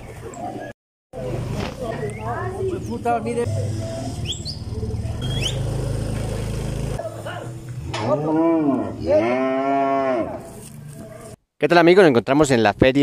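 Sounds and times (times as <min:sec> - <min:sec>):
cow mooing: 0:08.0 - 0:10.5.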